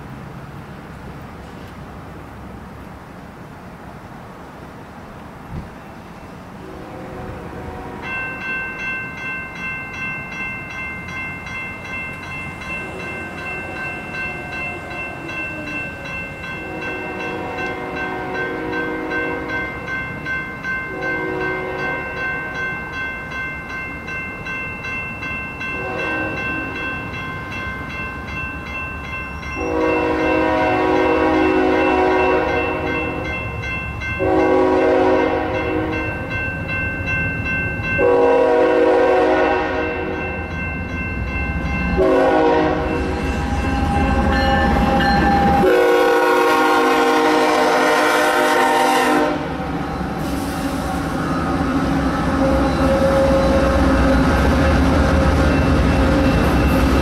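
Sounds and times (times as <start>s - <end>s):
engine and rail rumble: 0.0s - 57.0s
locomotive air horn blasts: 6.6s - 8.2s, 16.6s - 19.6s, 20.9s - 22.2s, 25.8s - 26.8s, 29.6s - 33.3s, 34.2s - 36.0s, 38.0s - 40.2s, 42.0s - 43.6s, 45.5s - 49.6s, 52.3s - 53.6s
crossing bell ringing: 7.3s - 57.0s.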